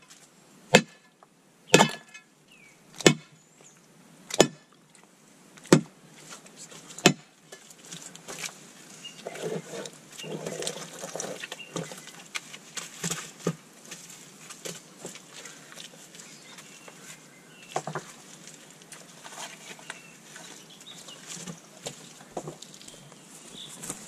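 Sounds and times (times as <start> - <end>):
shovels knocking and scraping mud: 1.7 - 2.3, 3.0 - 3.3, 4.3 - 4.8, 5.6 - 23.1.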